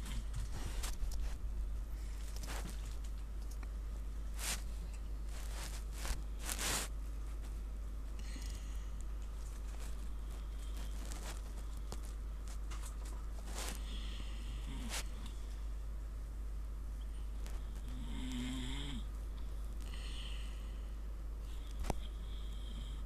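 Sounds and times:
low hum: 0:00.0 - 0:23.0.

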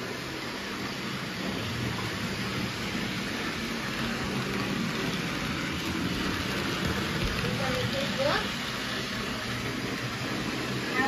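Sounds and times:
model train motor whirring: 0:05.8 - 0:10.0.

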